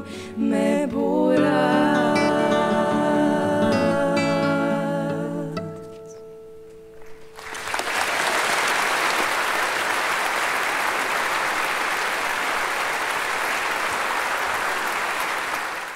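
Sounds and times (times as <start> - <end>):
audience applauding: 7.0 - 15.9.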